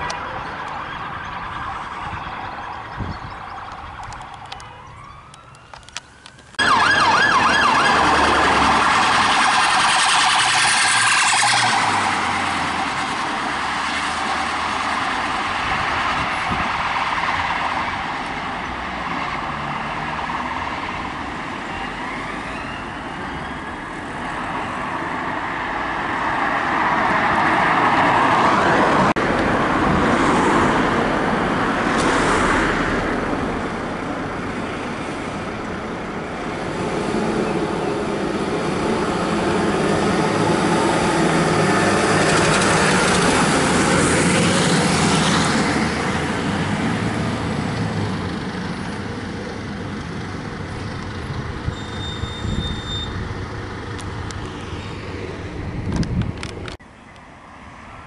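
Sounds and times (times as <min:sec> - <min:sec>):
faint siren sweeping: 0:00.0 - 0:13.3, 0:21.4 - 0:25.0
emergency vehicles passing: 0:00.0 - 0:58.0
road traffic: 0:00.0 - 0:58.0.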